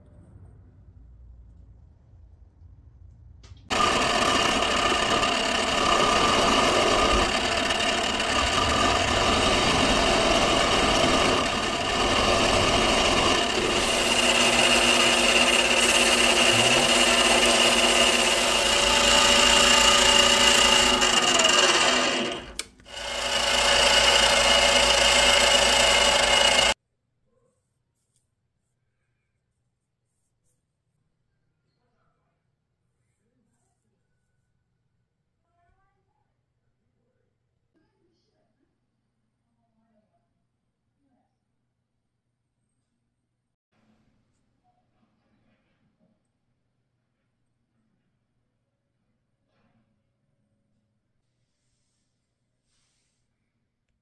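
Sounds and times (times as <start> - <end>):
metal lathe whining: 3.7 - 26.8.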